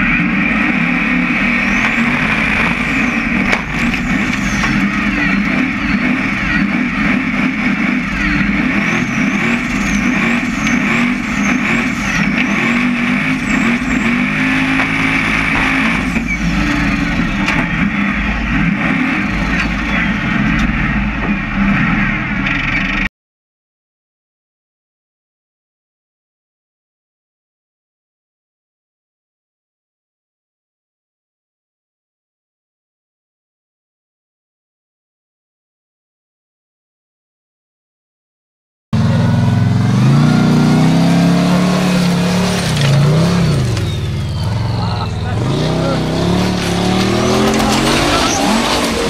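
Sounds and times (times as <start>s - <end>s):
buggy engine revving: 0.0s - 23.1s, 39.0s - 49.0s.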